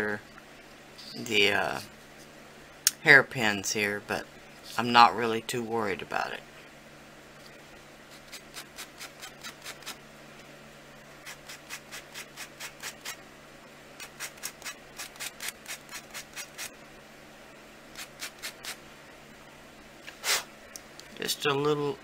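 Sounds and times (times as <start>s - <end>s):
sanding block rubbing: 11.3s - 13.2s.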